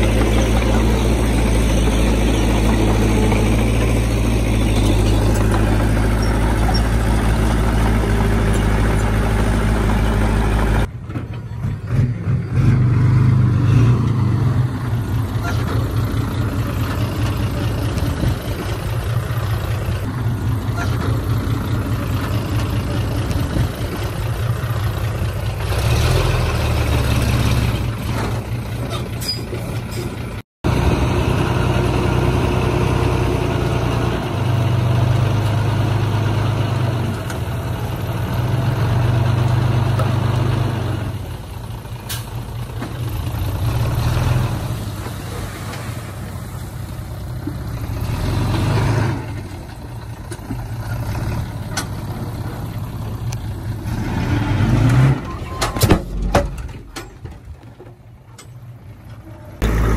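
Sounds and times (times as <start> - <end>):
heavy diesel engines droning: 0.0 - 59.9.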